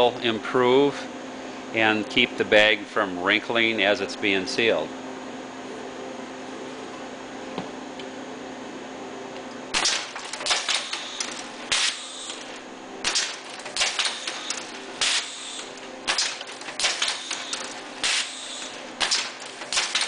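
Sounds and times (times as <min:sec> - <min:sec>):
steady machine hum: 0:00.0 - 0:20.0
machine jaws clacking: 0:09.8 - 0:20.0.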